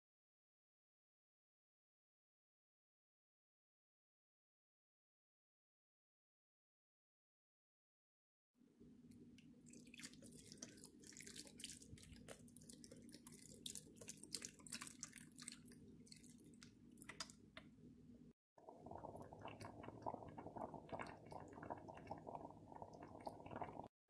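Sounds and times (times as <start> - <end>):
broth pouring and splashing: 9.6 - 17.4, 18.6 - 23.9.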